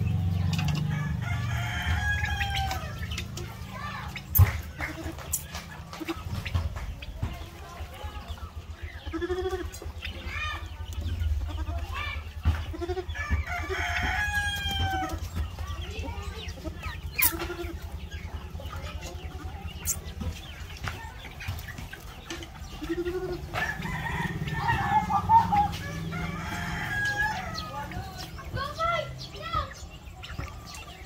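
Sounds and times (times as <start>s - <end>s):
chickens clucking: 0.0s - 31.0s
rooster crowing: 0.8s - 3.0s, 13.1s - 15.2s, 23.5s - 27.8s.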